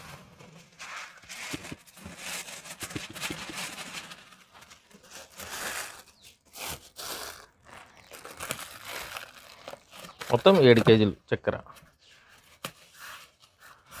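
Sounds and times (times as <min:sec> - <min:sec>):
plastic bag crinkling: 0:01.8 - 0:11.1.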